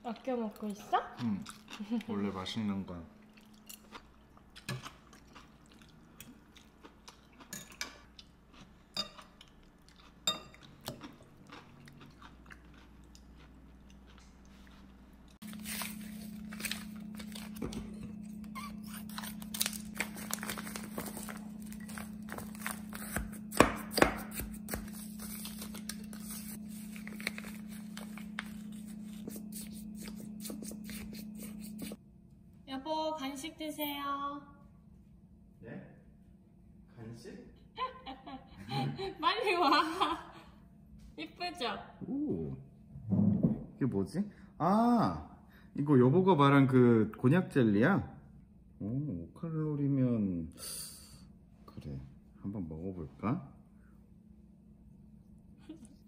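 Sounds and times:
chewing: 0:00.5 - 0:02.2, 0:03.2 - 0:15.4
low hum: 0:13.1 - 0:43.8
spoon crunching frozen jelly: 0:15.4 - 0:31.7.

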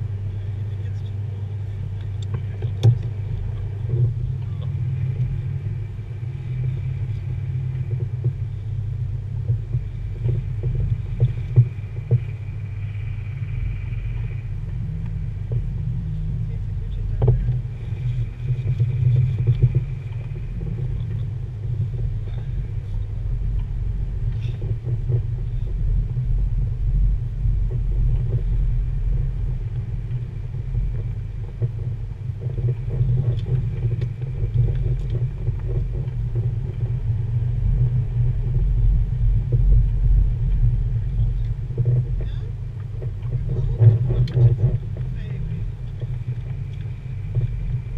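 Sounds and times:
car rumble from inside cabin: 0:00.0 - 0:47.9
faint clicks: 0:16.9 - 0:21.3.

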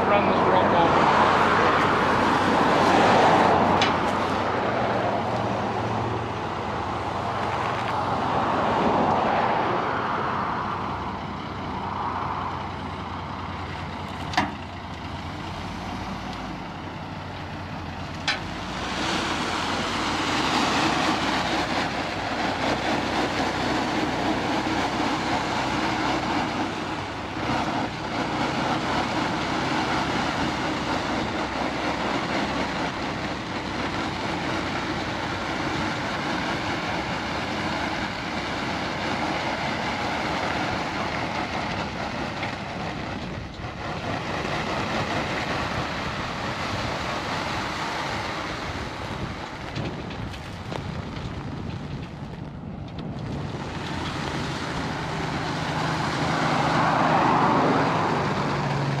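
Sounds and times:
highway traffic passing: 0:00.0 - 0:59.0
truck engines running: 0:00.0 - 0:59.0.

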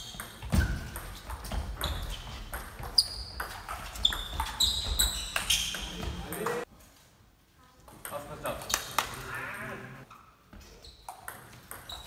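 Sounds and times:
shoes squeaking on floor: 0:00.0 - 0:06.7, 0:10.0 - 0:12.0.

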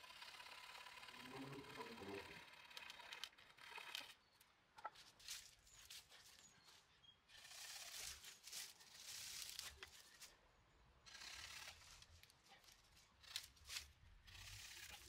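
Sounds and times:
small clicks: 0:02.7 - 0:05.0
wooden branch rustling through brush: 0:04.8 - 0:06.9, 0:07.6 - 0:10.4, 0:11.6 - 0:14.1.

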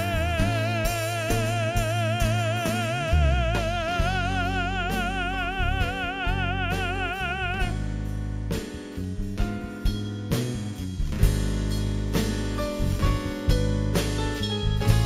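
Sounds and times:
man singing held notes: 0:00.0 - 0:07.8
acoustic guitar: 0:00.0 - 0:15.0
drum kit: 0:00.0 - 0:15.0
electric bass: 0:00.0 - 0:15.0.

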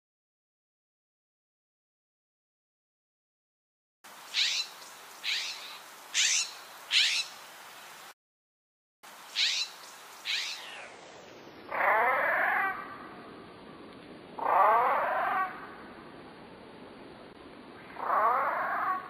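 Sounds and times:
jay calls: 0:04.4 - 0:07.3, 0:09.4 - 0:11.0, 0:11.7 - 0:13.1, 0:14.4 - 0:15.8, 0:17.8 - 0:19.0.

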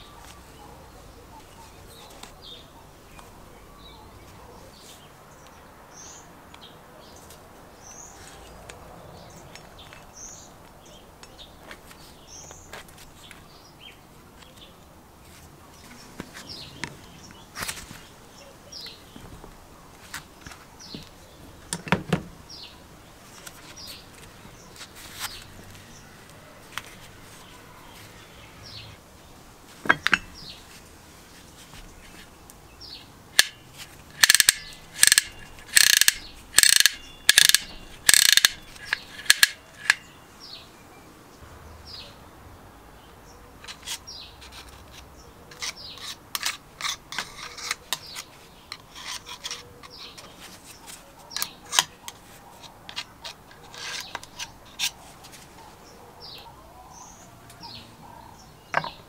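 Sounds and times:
ratchet clicking: 0:33.4 - 0:33.6, 0:34.2 - 0:40.0.

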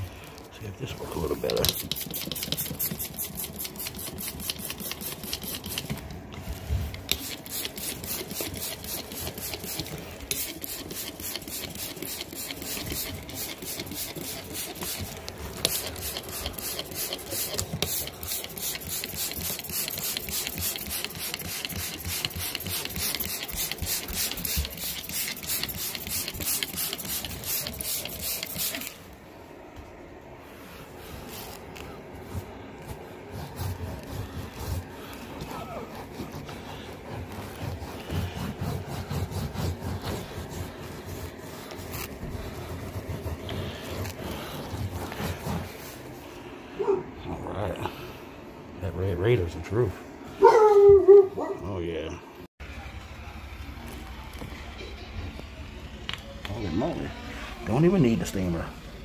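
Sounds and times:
brush scrubbing carpet: 0:00.1 - 0:46.6.

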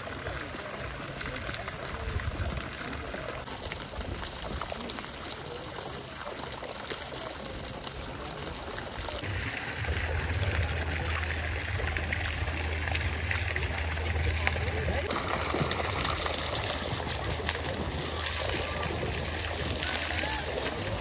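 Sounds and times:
water running and trickling: 0:00.0 - 0:21.0
steady low hum: 0:09.3 - 0:19.8.

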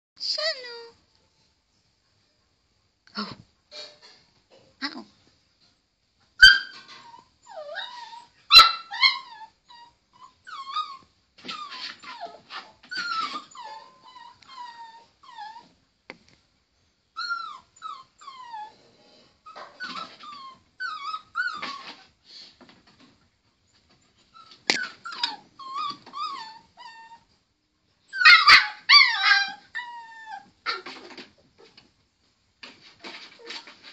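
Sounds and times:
puppy whimpering and yipping: 0:06.4 - 0:15.8, 0:17.2 - 0:18.8, 0:19.4 - 0:22.0, 0:24.3 - 0:27.3, 0:28.1 - 0:31.7
puppy yelp: 0:06.4 - 0:15.8, 0:17.2 - 0:18.7, 0:19.5 - 0:22.0, 0:24.3 - 0:27.3, 0:28.1 - 0:31.7.

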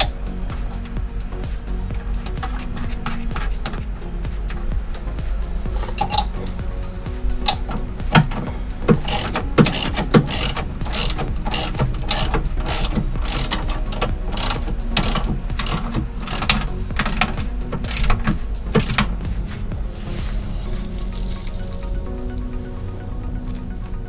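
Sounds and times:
ratchet wrench clicking: 0:00.0 - 0:05.2, 0:05.8 - 0:06.6, 0:07.3 - 0:19.3.

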